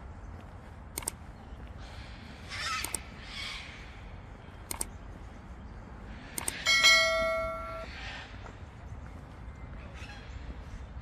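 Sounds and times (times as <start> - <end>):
metallic bell-like ring: 6.7 - 7.9.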